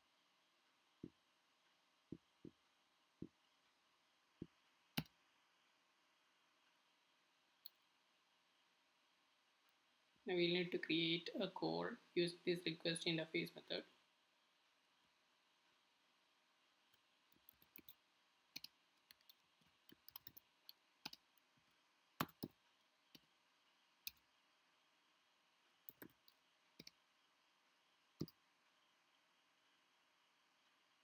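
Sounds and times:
computer keyboard typing: 0:17.3 - 0:18.0, 0:18.6 - 0:21.4, 0:22.2 - 0:23.2, 0:25.9 - 0:27.0.

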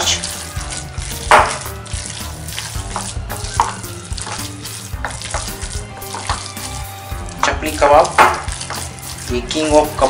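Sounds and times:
hands squishing wet minced meat: 0:00.0 - 0:10.0.

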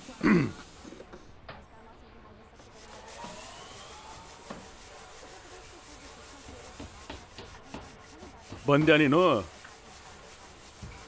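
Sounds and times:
sandpaper scraping wood: 0:02.6 - 0:11.0.

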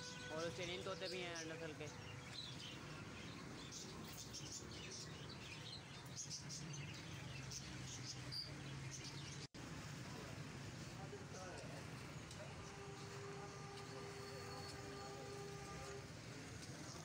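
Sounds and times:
birds chirping: 0:00.0 - 0:09.5
street noise hum: 0:00.0 - 0:17.0.

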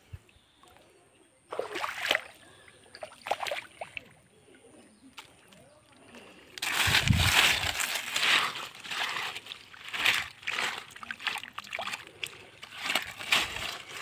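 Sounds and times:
hands splashing in muddy water: 0:01.5 - 0:02.4, 0:06.6 - 0:14.0.

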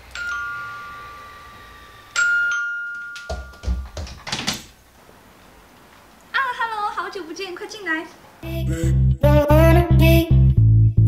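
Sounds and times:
electronic doorbell chime: 0:00.1 - 0:03.9
door handle and latch clicking: 0:03.0 - 0:04.7.

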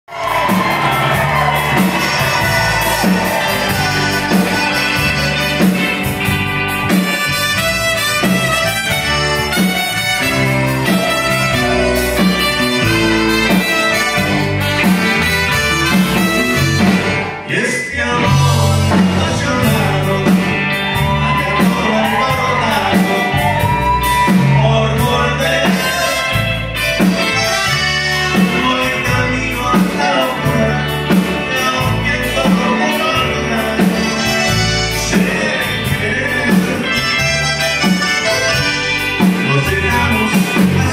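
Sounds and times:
accordion: 0:00.1 - 0:17.4, 0:25.4 - 0:28.9, 0:30.9 - 0:40.9
live band playing: 0:00.1 - 0:40.9.

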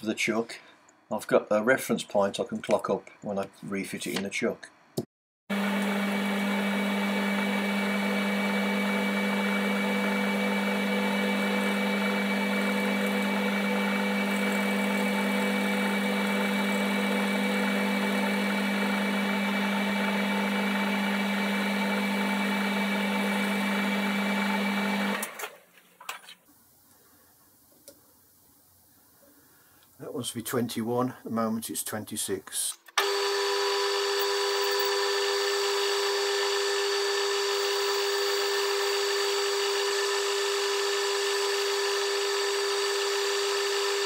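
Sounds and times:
metal lathe humming and whining: 0:05.5 - 0:25.4, 0:33.0 - 0:44.0.

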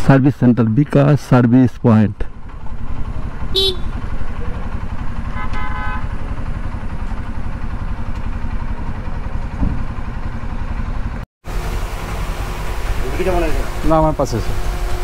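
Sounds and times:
motorcycle engine idling: 0:02.3 - 0:14.2
vehicle horn toot: 0:03.5 - 0:04.0, 0:05.2 - 0:06.2.

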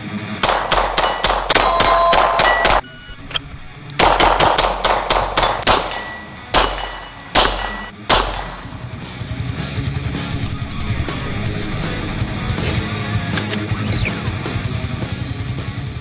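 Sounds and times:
rifle shots: 0:00.4 - 0:02.8, 0:04.0 - 0:09.0
metallic clanging: 0:00.4 - 0:09.0
electric guitar rock music: 0:05.5 - 0:16.0.

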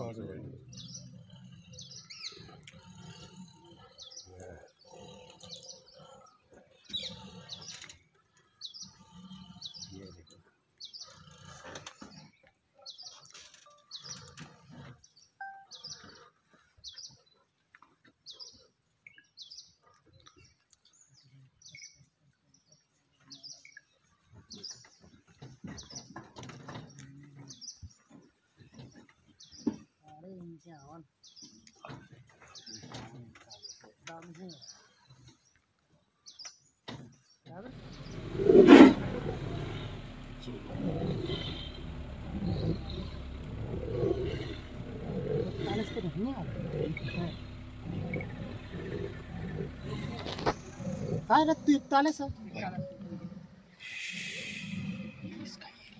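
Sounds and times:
bird chirping: 0:00.3 - 0:10.2, 0:15.0 - 0:17.4, 0:36.2 - 0:55.9.

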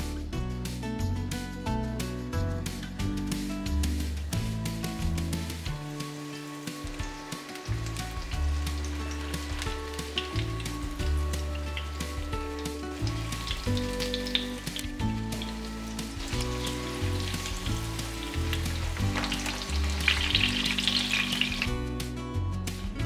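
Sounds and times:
background music: 0:00.0 - 0:23.0
cutlets sizzling in hot oil: 0:04.3 - 0:21.8.

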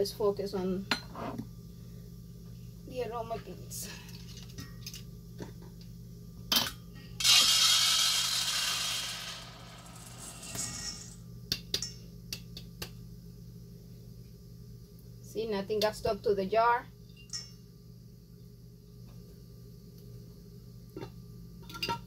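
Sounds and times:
plastic pellets pouring into bowl: 0:07.2 - 0:11.1.

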